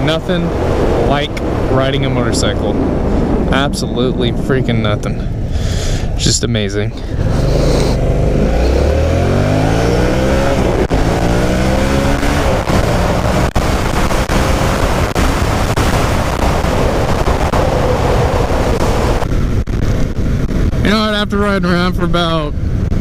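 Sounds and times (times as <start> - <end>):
motorcycle engine accelerating: 7.0 - 21.7.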